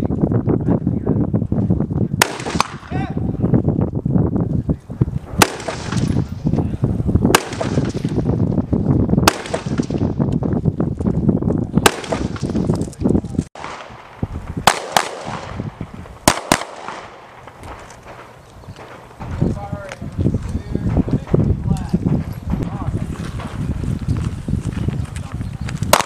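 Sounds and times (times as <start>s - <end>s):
pistol shots: 2.2s - 2.9s, 5.4s - 6.3s, 7.3s - 8.2s, 9.2s - 10.1s, 11.8s - 12.6s, 13.6s - 19.4s
rifle shots: 2.2s - 2.9s, 5.4s - 6.3s, 7.3s - 8.3s, 9.2s - 10.1s, 11.8s - 12.7s, 13.6s - 19.4s.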